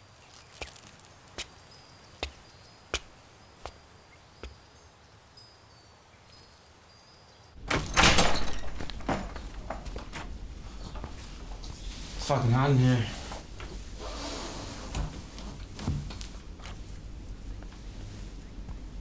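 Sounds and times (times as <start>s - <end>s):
door flung open with bang: 7.6s - 11.1s.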